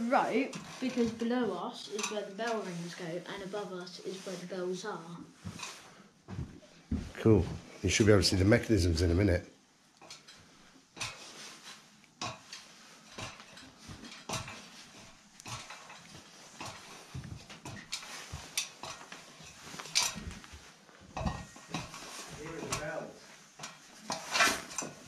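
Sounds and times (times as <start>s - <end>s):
footsteps on wooden ladder: 5.4s - 9.2s, 11.0s - 25.0s.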